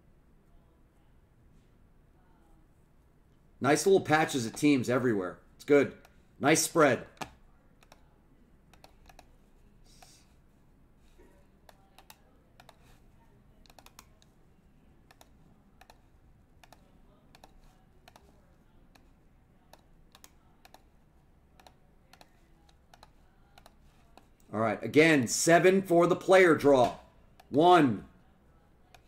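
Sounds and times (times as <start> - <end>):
computer keyboard and mouse clicking: 7.1 - 8.1, 8.7 - 9.4, 11.7 - 13.0, 13.6 - 14.3, 15.1 - 24.5.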